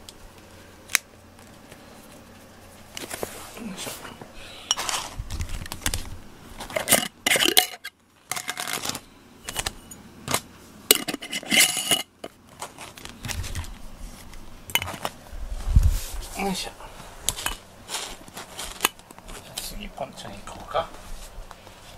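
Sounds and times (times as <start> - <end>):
glass jar clinking on wood: 6.7 - 8.8, 10.9 - 12.1.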